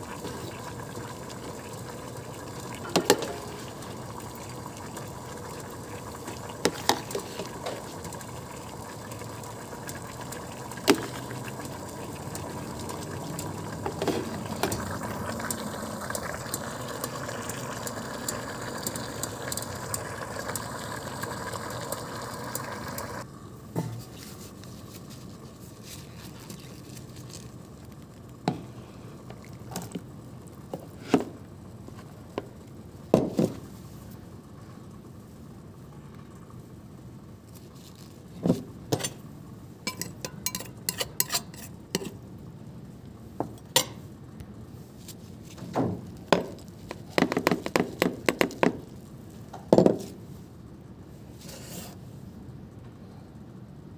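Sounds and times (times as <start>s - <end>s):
cutlery clinking against a dish: 39.9s - 42.2s.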